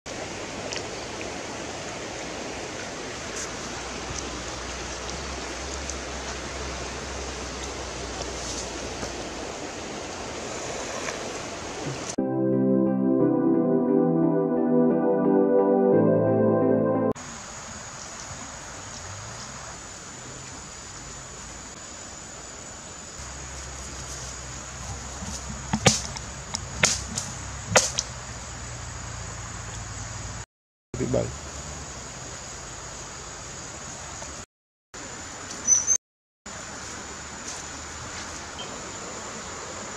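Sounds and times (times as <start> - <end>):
stream rushing: 0.1 - 12.2
footsteps rustling dry leaves: 23.3 - 26.0.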